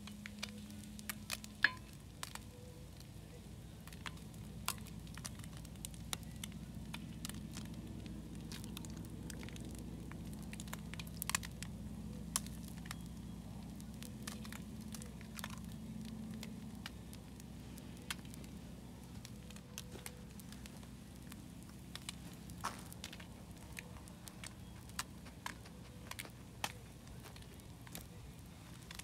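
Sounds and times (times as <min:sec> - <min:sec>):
egg shells cracking on pan: 0:00.0 - 0:29.0
fat crackling and popping: 0:00.0 - 0:29.0.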